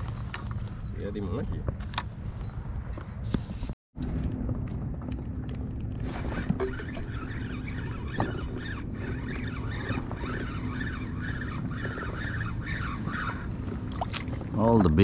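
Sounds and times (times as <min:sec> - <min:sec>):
boat engine humming: 0:04.0 - 0:15.0.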